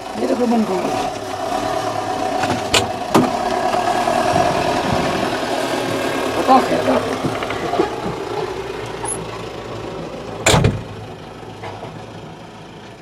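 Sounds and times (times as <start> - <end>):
tractor diesel engine idling: 0.0 - 13.0.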